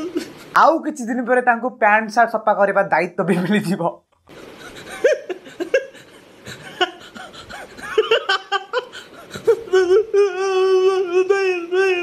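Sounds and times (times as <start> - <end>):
man laughing in breathy bursts: 0.0 - 0.6, 4.3 - 10.6
man wailing: 9.4 - 12.0.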